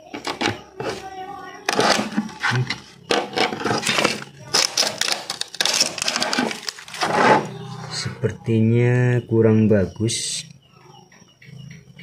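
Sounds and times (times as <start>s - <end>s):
edge trimmer scraping laminate: 1.7s - 7.5s.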